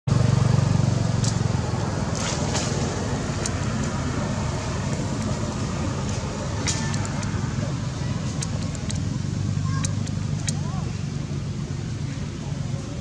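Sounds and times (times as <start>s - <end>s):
low engine rumble: 0.1s - 13.0s
faint high ticks: 9.7s - 10.7s.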